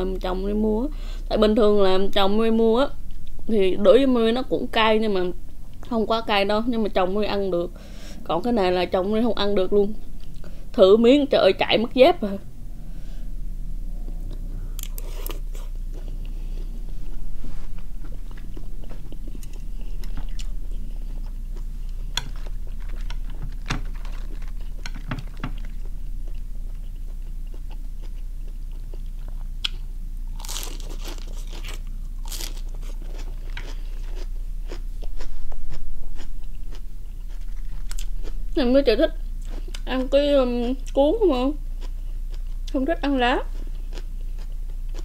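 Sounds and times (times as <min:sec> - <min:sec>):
chewing and crunching food: 0:17.5 - 0:38.4, 0:41.8 - 0:42.8, 0:43.4 - 0:45.0.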